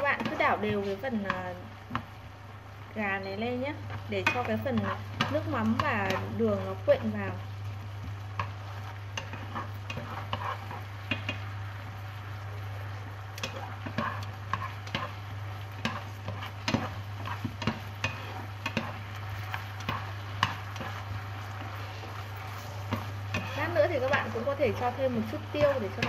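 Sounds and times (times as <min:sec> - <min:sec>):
chicken sizzling in a frying pan: 0:00.0 - 0:26.0
steady low hum: 0:00.0 - 0:26.0
chopsticks clicking and scraping: 0:08.4 - 0:11.4, 0:13.3 - 0:15.2, 0:15.8 - 0:26.0.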